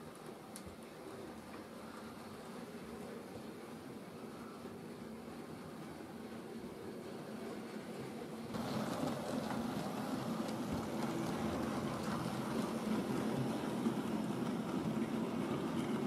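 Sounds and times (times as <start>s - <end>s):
model train running on rails: 0.0s - 16.0s.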